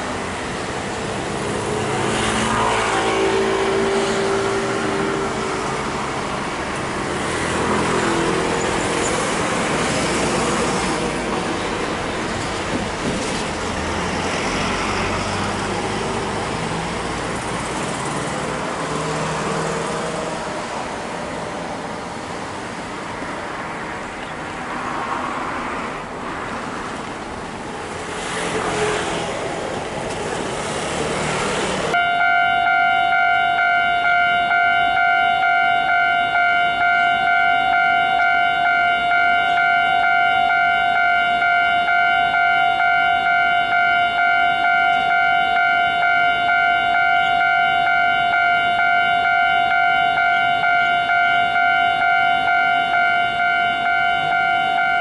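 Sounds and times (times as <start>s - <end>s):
traffic noise: 0.0s - 55.0s
level crossing electronic ringing: 32.0s - 55.0s.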